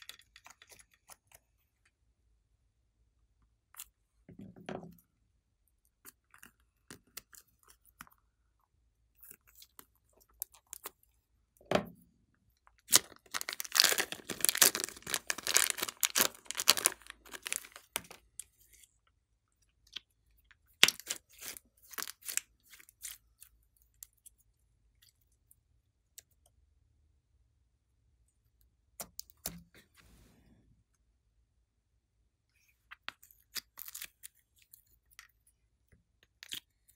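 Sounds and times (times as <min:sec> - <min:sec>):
slime crackling and squelching: 0:12.7 - 0:19.0, 0:19.7 - 0:24.4, 0:32.7 - 0:35.4.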